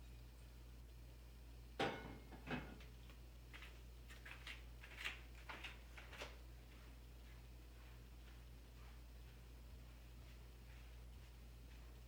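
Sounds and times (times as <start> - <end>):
low steady hum: 0.0 - 12.0
faint clicks and rustles: 2.8 - 12.0.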